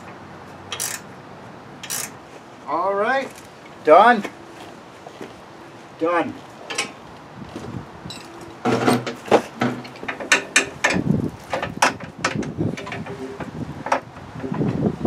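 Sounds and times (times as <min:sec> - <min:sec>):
steel frame clanking and rattling: 0:00.0 - 0:01.1, 0:01.8 - 0:02.2, 0:06.7 - 0:07.0, 0:08.1 - 0:14.9.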